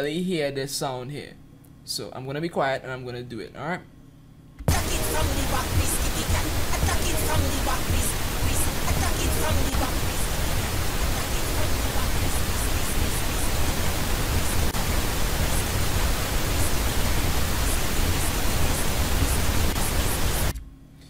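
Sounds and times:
pink noise hiss: 0:04.7 - 0:20.6.

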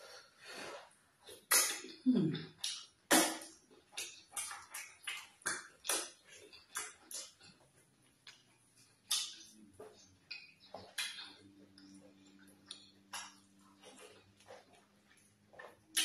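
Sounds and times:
sticky food squishing: 0:00.0 - 0:16.0
wet chewing and lip smacking: 0:00.6 - 0:16.0
sharp mouth clicks: 0:01.4 - 0:07.5.

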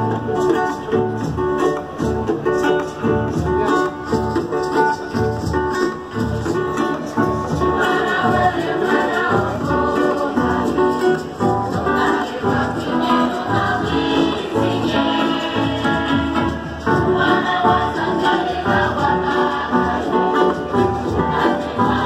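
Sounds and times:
strummed acoustic guitars: 0:00.0 - 0:22.0
people singing a hymn: 0:07.1 - 0:22.0.

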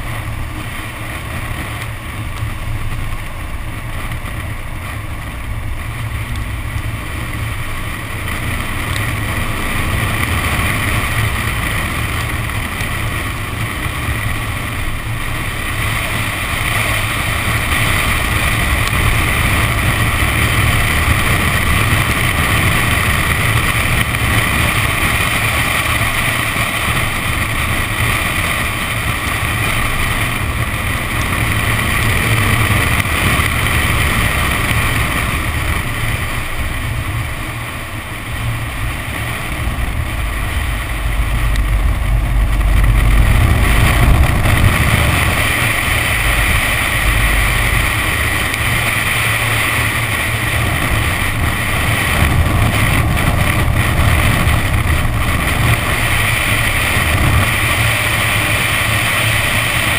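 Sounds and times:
car engine at speed: 0:00.0 - 0:59.9
wind on microphone: 0:00.0 - 0:59.9.

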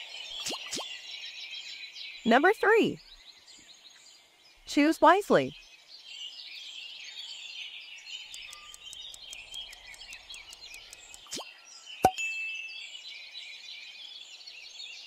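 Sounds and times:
small birds chirping: 0:00.0 - 0:15.0
quick ticks: 0:08.2 - 0:11.4.

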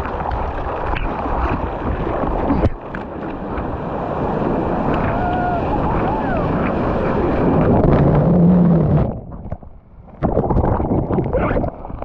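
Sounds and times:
sea water splashing: 0:00.0 - 0:12.0
wind: 0:00.0 - 0:12.0
muffled underwater sound: 0:04.8 - 0:12.0
rain: 0:04.9 - 0:06.4.

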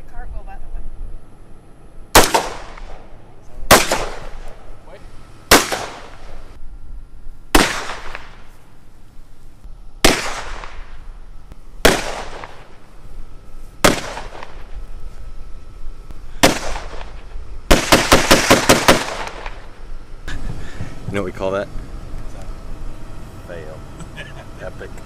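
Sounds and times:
gunshots with echo: 0:02.2 - 0:03.0, 0:03.7 - 0:04.4, 0:05.5 - 0:06.4, 0:16.4 - 0:19.6
rapid string of gunshots: 0:02.2 - 0:03.0, 0:03.7 - 0:04.5, 0:05.5 - 0:06.4, 0:07.5 - 0:08.5, 0:10.0 - 0:11.0, 0:11.8 - 0:12.8, 0:13.8 - 0:14.7, 0:16.4 - 0:19.7.

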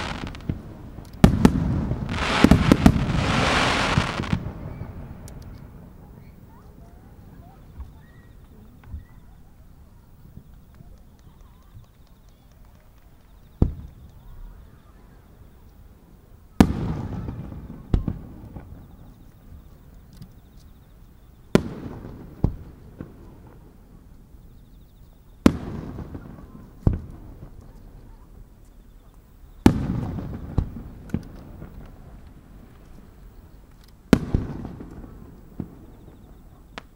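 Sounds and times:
smaller firework bang: 0:00.0 - 0:05.0
firework bangs with rolling echo: 0:00.0 - 0:08.0, 0:16.6 - 0:19.6, 0:21.5 - 0:24.1, 0:25.4 - 0:28.2, 0:29.6 - 0:33.4, 0:34.1 - 0:36.9.

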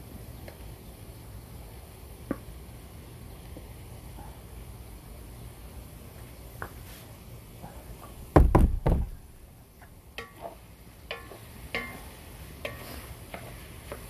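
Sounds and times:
heavy knocks: 0:08.3 - 0:09.4.

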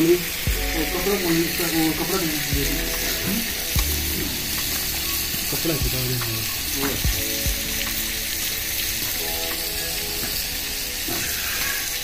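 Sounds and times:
voices talking: 0:00.0 - 0:07.5
chicken sizzling in a wok: 0:00.0 - 0:12.0.

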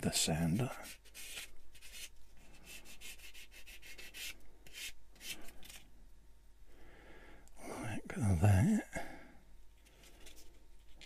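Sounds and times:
sander scratching plastic: 0:00.8 - 0:05.8.

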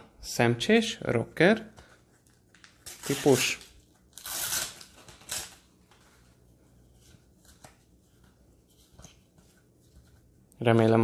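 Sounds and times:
sticker packet tearing: 0:02.6 - 0:05.6.

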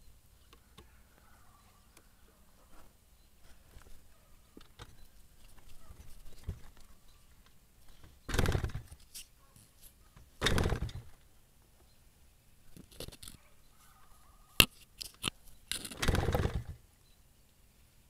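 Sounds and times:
motorcycle engine kick-start bursts: 0:08.3 - 0:08.9, 0:10.4 - 0:11.1, 0:15.9 - 0:16.8.

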